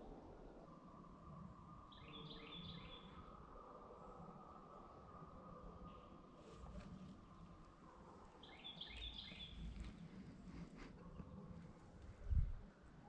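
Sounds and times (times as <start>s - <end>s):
faint outdoor background: 0.0s - 13.0s
bird chirping: 1.9s - 3.2s, 8.4s - 10.2s.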